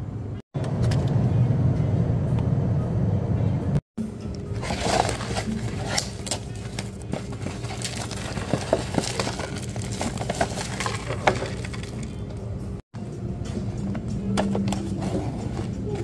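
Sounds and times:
plastic wrap crinkling: 0:04.6 - 0:12.3.

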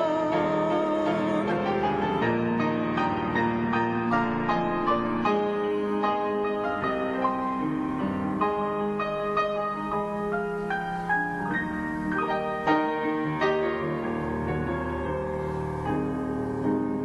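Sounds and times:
slow piano music: 0:00.0 - 0:17.0.

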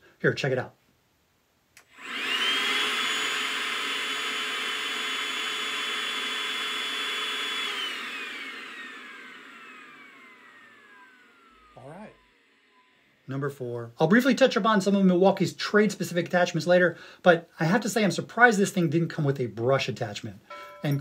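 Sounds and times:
handheld vacuum motor whine: 0:01.8 - 0:13.2.

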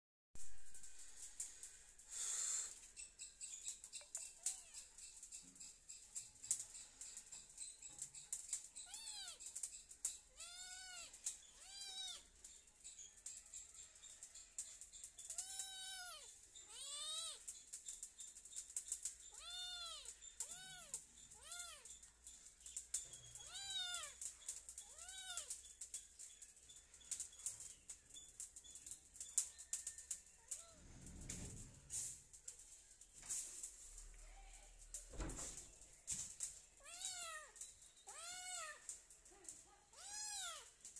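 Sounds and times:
kitten meowing: 0:08.8 - 0:09.5, 0:10.3 - 0:12.2, 0:15.3 - 0:17.5, 0:19.3 - 0:21.9, 0:23.4 - 0:24.2, 0:24.8 - 0:25.5, 0:36.8 - 0:38.9, 0:39.9 - 0:40.7.

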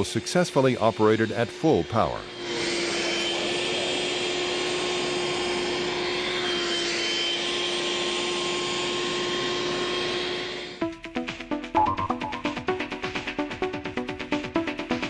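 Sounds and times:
handheld vacuum cleaner running: 0:02.5 - 0:10.8.

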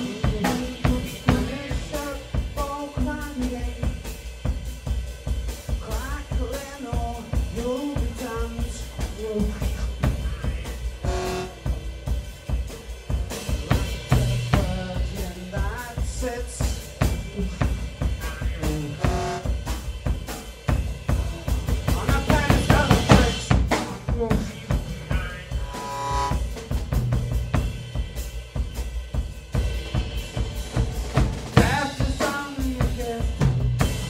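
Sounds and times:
busy drum kit playing: 0:00.0 - 0:34.0
sliding melodic phrases: 0:11.0 - 0:14.5.

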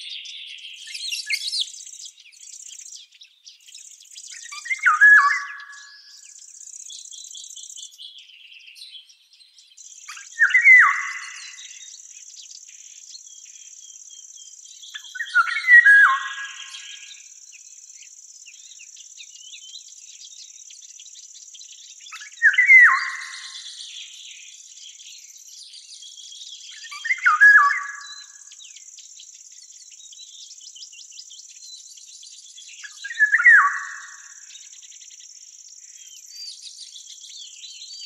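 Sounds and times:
crickets trilling: 0:00.9 - 0:07.9, 0:09.8 - 0:38.0
bird song with falling notes: 0:04.3 - 0:06.3, 0:07.9 - 0:11.9, 0:14.8 - 0:17.2, 0:22.1 - 0:28.8, 0:32.3 - 0:34.8.

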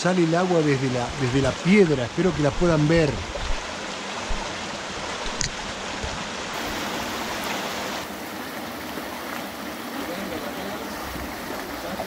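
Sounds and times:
stream running over rocks: 0:00.0 - 0:12.0
water spilling from rock wall: 0:06.5 - 0:12.0.

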